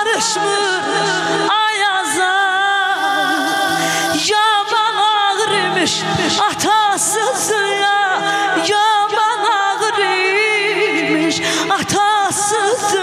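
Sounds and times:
woman singing into a microphone: 0.0s - 13.0s.

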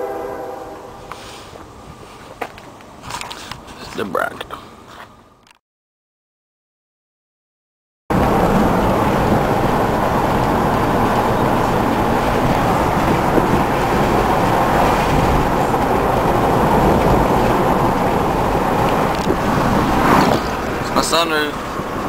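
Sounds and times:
vehicle driving heard from inside: 8.1s - 22.0s.

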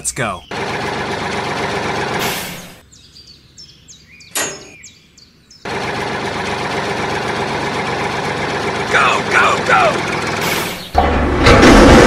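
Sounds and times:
tractor engine running: 0.0s - 2.8s, 5.6s - 12.0s
birds chirping: 0.0s - 11.0s.

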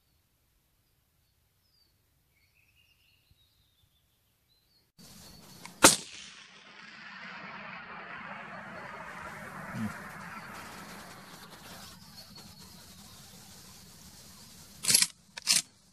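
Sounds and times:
faint bird chirps: 0.0s - 5.8s, 6.7s - 14.8s
steady hiss: 5.0s - 15.9s
rifle shot with echo: 5.2s - 11.8s.

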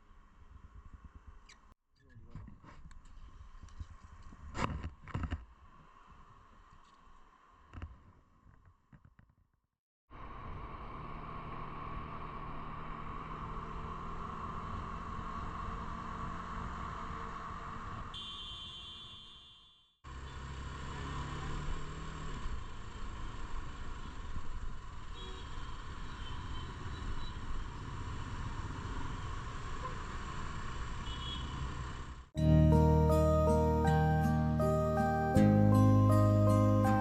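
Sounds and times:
wind and road noise: 0.0s - 1.7s, 2.3s - 9.2s, 10.1s - 18.6s, 20.1s - 32.3s.

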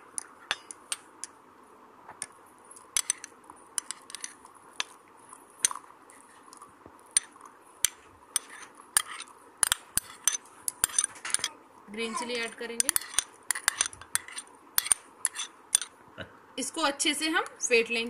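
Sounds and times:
faint steady hum: 0.0s - 18.0s
metal spoon scraping glass bowl: 3.0s - 5.0s, 7.2s - 11.5s, 12.2s - 15.9s.

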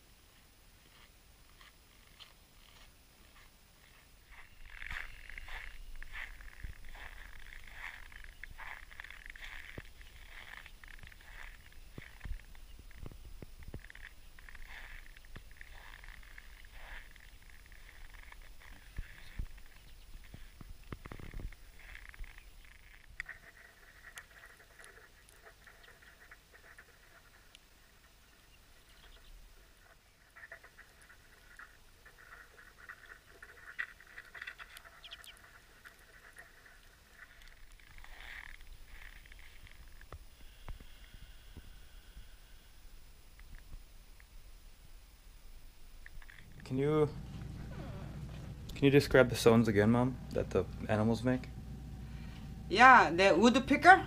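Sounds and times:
footsteps crunching on snow: 0.3s - 22.3s, 46.1s - 52.7s
finches chirping: 4.3s - 20.9s, 28.3s - 29.4s, 34.9s - 35.4s
low rumble: 46.2s - 54.0s.

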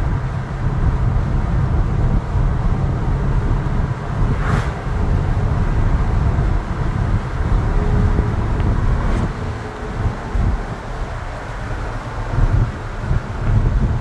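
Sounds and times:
engine tyre and wind drone: 0.0s - 14.0s
brief rushing hiss: 4.2s - 5.0s.

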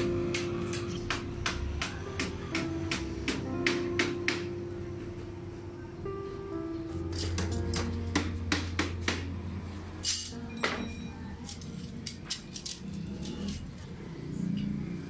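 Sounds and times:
steel bars clanking on concrete: 10.0s - 10.9s.

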